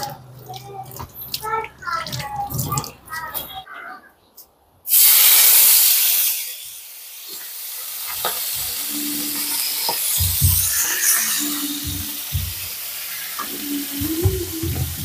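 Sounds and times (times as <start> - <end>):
fish sizzling in hot oil: 4.9 - 15.0.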